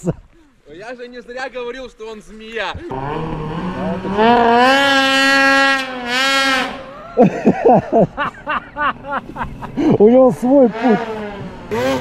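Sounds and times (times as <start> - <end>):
snowmobile engine revving: 2.7 - 12.0.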